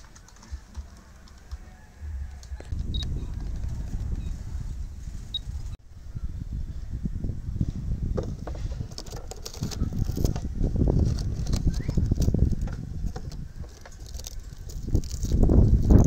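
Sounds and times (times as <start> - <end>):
steady low rumble: 2.0 - 8.4.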